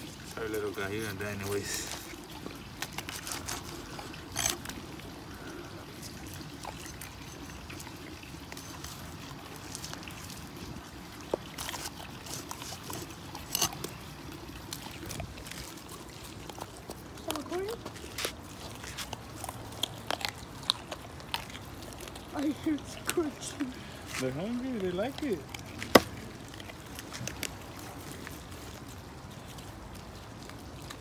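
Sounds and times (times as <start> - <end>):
cleaver chopping into wood: 25.8 - 26.1.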